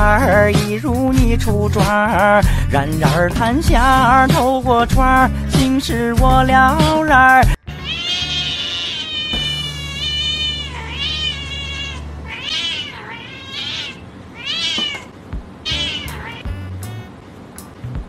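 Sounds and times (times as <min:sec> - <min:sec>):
cat meowing: 0:07.7 - 0:17.1.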